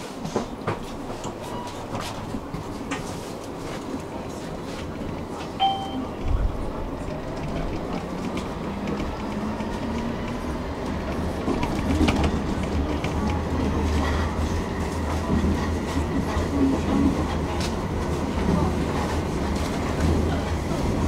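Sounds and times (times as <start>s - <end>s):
tram rumbling on rails: 0.0s - 21.0s
short electronic beep: 5.6s - 6.1s.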